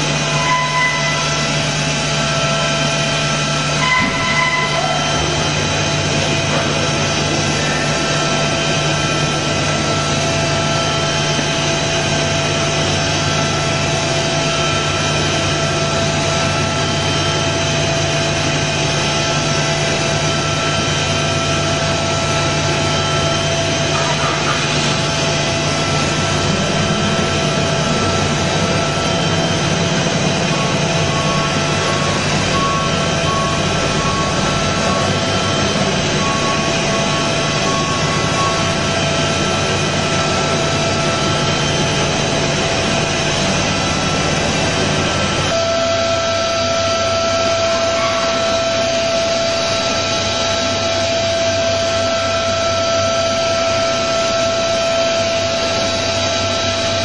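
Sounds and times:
high machine whine: 0.0 - 57.0
low machine hum: 0.0 - 57.0
machine milling metal: 0.0 - 57.0.

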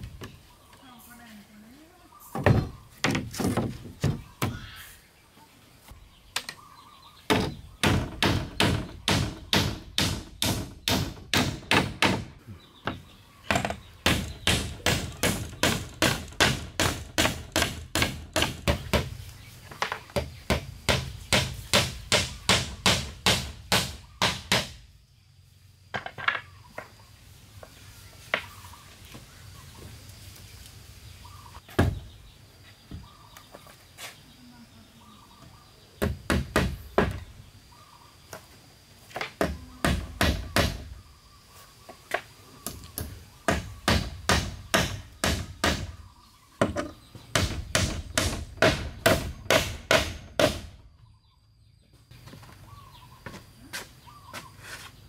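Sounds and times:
hatchet hammering wooden planks: 7.3 - 19.2, 20.1 - 24.8, 36.0 - 37.2, 39.2 - 40.9, 42.6 - 46.0, 46.6 - 50.8.

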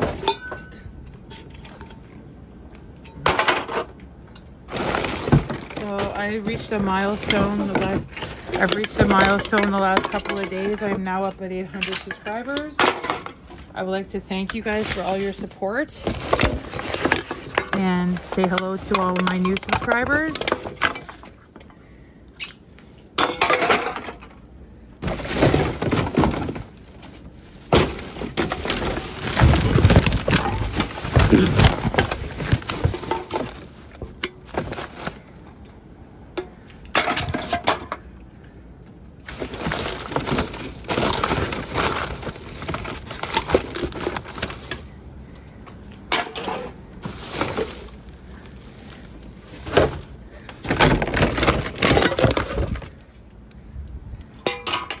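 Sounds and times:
cardboard and plastic rustling: 0.0 - 0.3, 4.5 - 21.5, 25.0 - 35.6, 39.2 - 45.5, 46.1 - 53.2
cans and bottles clinking: 4.7 - 13.7, 16.1 - 21.3, 23.2 - 24.3, 27.7 - 35.2.

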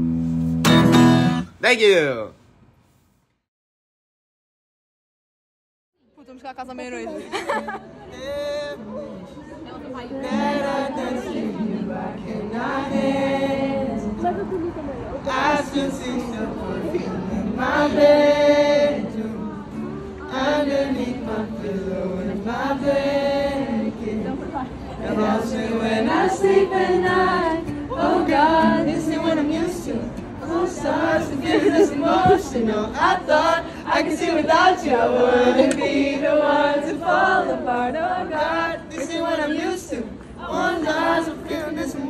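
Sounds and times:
crowd of fans chanting: 20.3 - 42.0.

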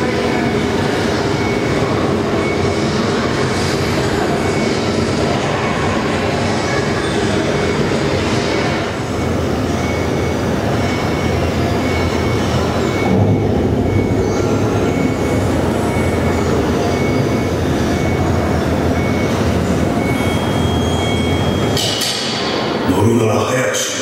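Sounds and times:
loud steady rumble: 0.0 - 24.0
short high beeps: 9.2 - 21.8.

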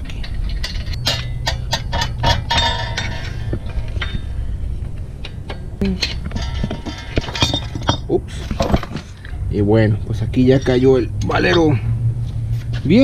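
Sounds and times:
steel bar clinking on metal: 0.0 - 4.2.

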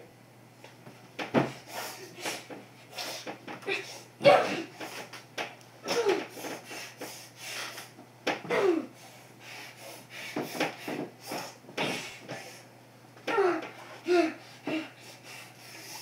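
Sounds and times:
boy grunting and breathing heavily: 1.4 - 4.9, 5.8 - 7.9, 8.5 - 9.1, 13.3 - 16.0.

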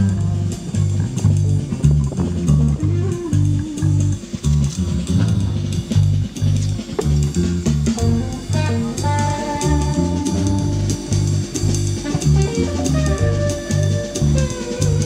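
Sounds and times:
electric bass guitar line: 0.0 - 15.0
drum kit hits: 3.5 - 15.0
electric guitar held notes: 8.0 - 15.0.

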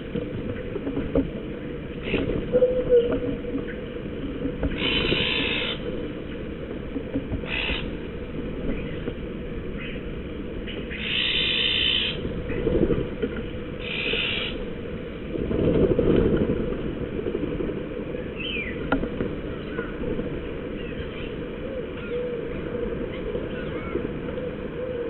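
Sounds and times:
steady low rumble: 0.0 - 25.0
magpie rasping calls: 4.8 - 5.8, 7.4 - 7.9, 10.9 - 12.2, 13.8 - 14.6.

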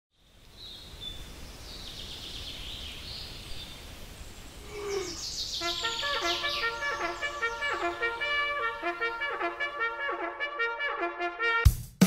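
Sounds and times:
birds chirping: 0.2 - 10.3
brass bugle playing: 5.6 - 11.8.

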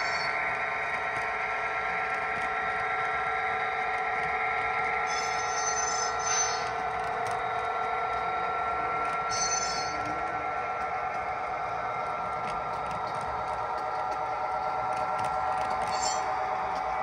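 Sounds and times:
high-pitched flange squeals: 0.0 - 0.4, 5.0 - 6.8, 9.3 - 10.1, 15.8 - 16.4
model train rolling hum: 0.0 - 17.0.

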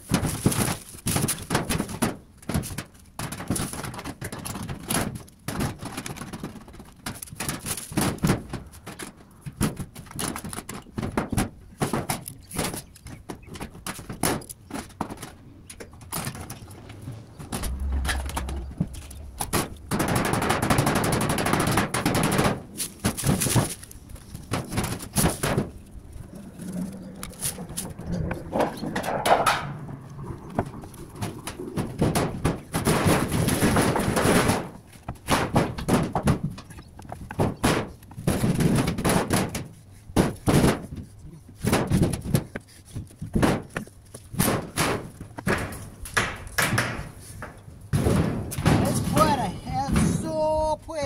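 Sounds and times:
sheet steel gutter banging: 0.0 - 26.2, 27.2 - 42.5, 43.2 - 51.0
metal flexing and popping: 0.0 - 50.3
steel sheet clattering: 16.0 - 25.9, 44.3 - 51.0.

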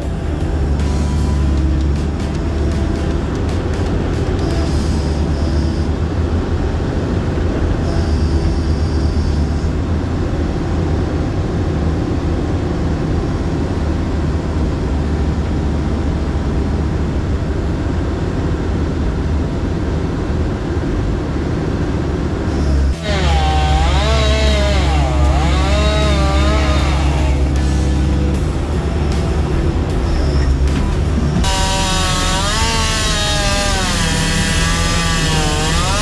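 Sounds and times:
thin high whine: 0.0 - 10.8, 22.5 - 36.0
diesel engine droning: 0.0 - 36.0.

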